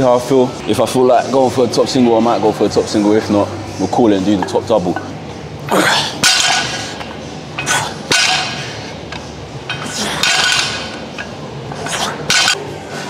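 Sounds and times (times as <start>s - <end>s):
metal weight plates clanking: 9.7s - 11.4s.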